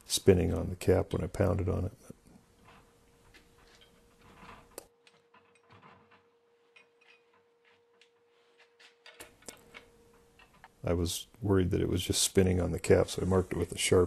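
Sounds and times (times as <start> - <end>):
faint steady hum: 0.0 - 14.0
small metal parts clicking: 2.6 - 10.8.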